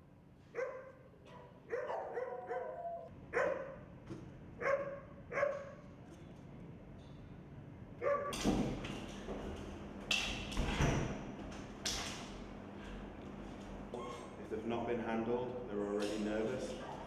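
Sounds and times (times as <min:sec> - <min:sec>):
dogs barking: 0:00.5 - 0:03.9, 0:04.6 - 0:05.9, 0:08.0 - 0:08.4.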